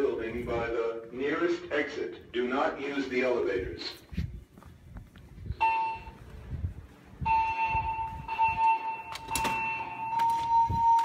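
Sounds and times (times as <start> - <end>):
footsteps: 3.5 - 11.0
steady alarm tone: 5.6 - 6.2, 7.2 - 11.0.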